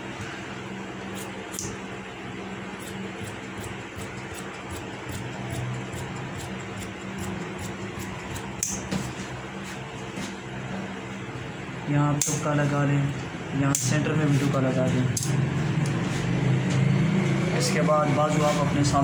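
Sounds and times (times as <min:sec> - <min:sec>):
steady mechanical hum: 0:00.0 - 0:19.0
shear blades clipping: 0:01.2 - 0:01.8, 0:02.8 - 0:09.0
shears cutting cloth: 0:02.8 - 0:09.8.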